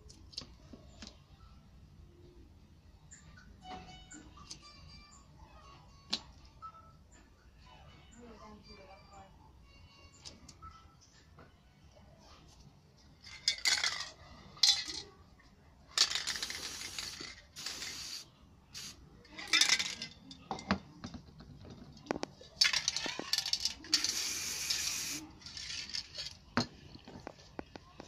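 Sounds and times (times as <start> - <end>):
spray paint can hissing: 16.0 - 19.0, 23.9 - 25.3
metal cans clicking and knocking: 19.4 - 27.2.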